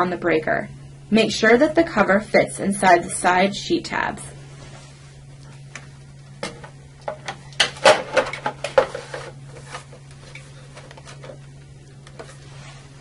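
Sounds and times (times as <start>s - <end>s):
plastic cover clattering and clicking: 6.4s - 11.4s.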